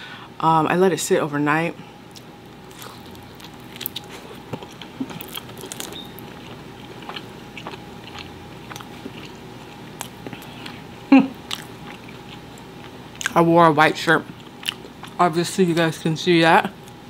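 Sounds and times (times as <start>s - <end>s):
chewing with crunches: 2.1s - 13.4s, 14.2s - 15.2s.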